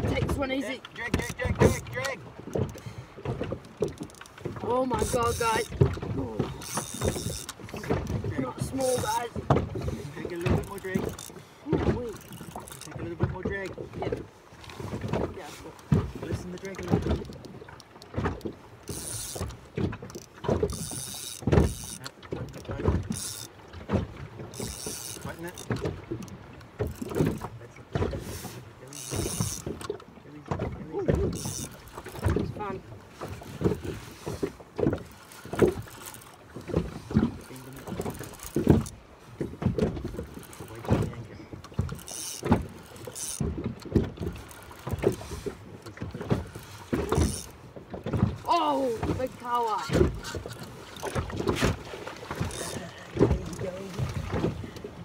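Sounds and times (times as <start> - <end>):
dull knocks in boat: 0.0 - 55.0
fishing reel whirring: 3.6 - 9.3, 10.2 - 11.4, 12.1 - 13.0, 17.0 - 23.6, 24.4 - 25.9, 28.9 - 29.9, 31.2 - 32.4, 35.0 - 39.0, 40.0 - 40.8, 41.7 - 45.8, 46.4 - 47.6, 49.3 - 53.7.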